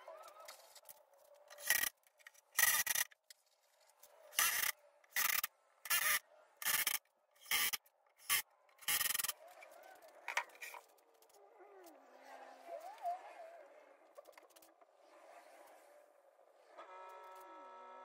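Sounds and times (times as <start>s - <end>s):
drill boring into wood: 4.3s - 9.2s.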